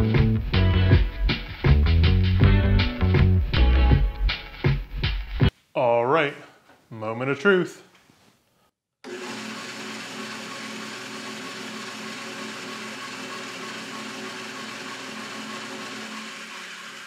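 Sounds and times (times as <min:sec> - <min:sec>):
drill press motor humming: 0:09.0 - 0:17.0.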